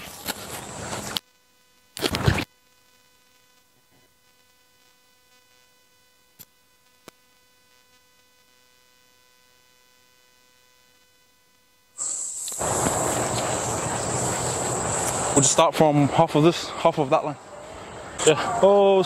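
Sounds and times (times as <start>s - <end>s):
faint steady hum: 0.0s - 19.0s
loud burst of microphone noise: 12.0s - 16.8s.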